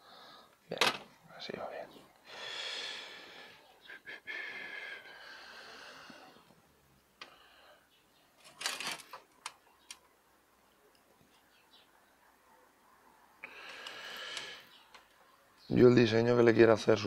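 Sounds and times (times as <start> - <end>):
person exhaling: 2.3 - 3.7, 13.4 - 14.7.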